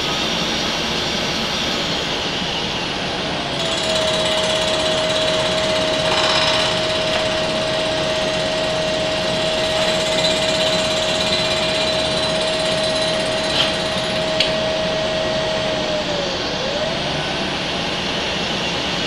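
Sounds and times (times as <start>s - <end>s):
milling machine whine: 0.0s - 19.0s
milling cutter grinding hiss: 3.5s - 16.5s.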